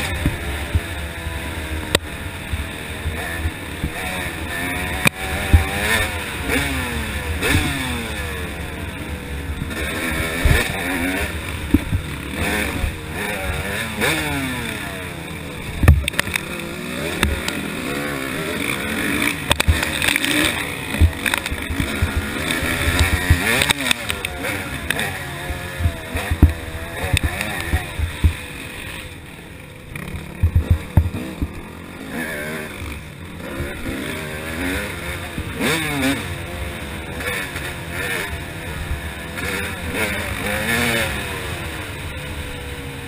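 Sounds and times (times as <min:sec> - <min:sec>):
dirt bike engine racing: 0:00.0 - 0:43.0
sharp knocks: 0:30.4 - 0:31.6.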